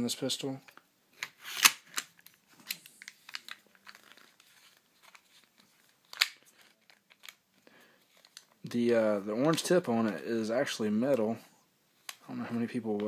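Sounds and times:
plastic clicks and rubbing: 0.6s - 8.7s.

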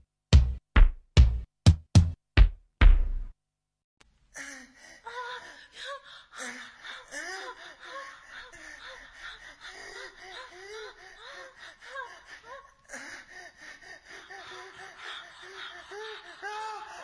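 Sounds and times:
high-pitched laughter: 14.4s - 17.0s.

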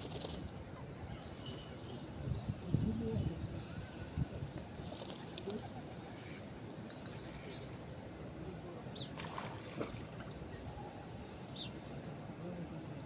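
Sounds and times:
songbirds chirping: 2.0s - 13.0s
rippling river water: 9.1s - 10.5s.

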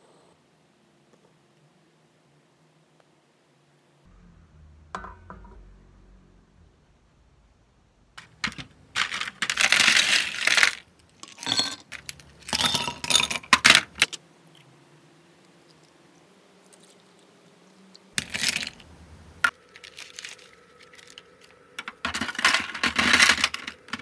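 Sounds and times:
ice cubes clinking into glass: 8.4s - 14.0s.

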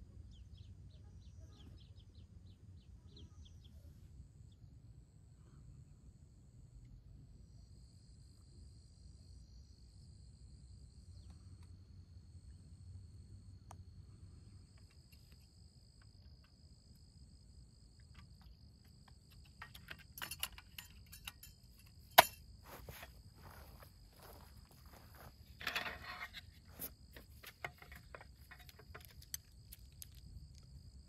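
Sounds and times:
low rumble of wind: 0.0s - 31.0s
insects trilling: 7.5s - 31.0s
camping gear knocks and clatter: 18.0s - 31.0s.

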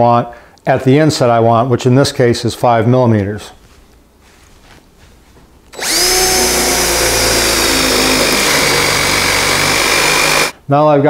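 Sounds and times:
cordless drill boring wood: 5.8s - 10.6s.

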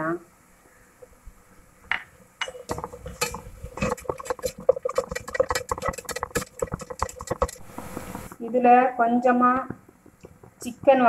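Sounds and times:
spatula scraping vegetables in pan: 2.4s - 8.3s.

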